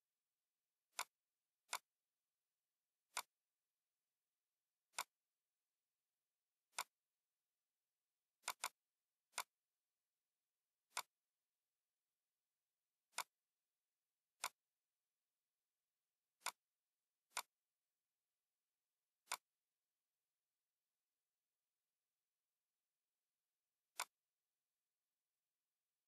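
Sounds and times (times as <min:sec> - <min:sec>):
computer mouse clicks: 0:00.9 - 0:01.9, 0:03.1 - 0:03.4, 0:04.9 - 0:05.2, 0:06.7 - 0:07.0, 0:08.4 - 0:09.6, 0:10.9 - 0:11.2, 0:13.1 - 0:13.4, 0:14.4 - 0:14.7, 0:16.4 - 0:16.6, 0:17.3 - 0:17.6, 0:19.2 - 0:19.6, 0:23.9 - 0:24.3.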